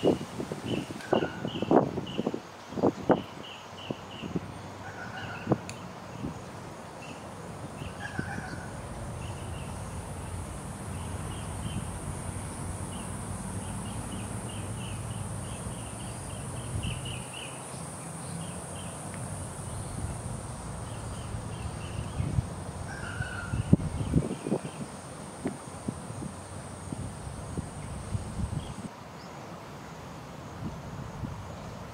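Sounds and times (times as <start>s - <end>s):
high-pitched insect drone: 9.2s - 28.9s.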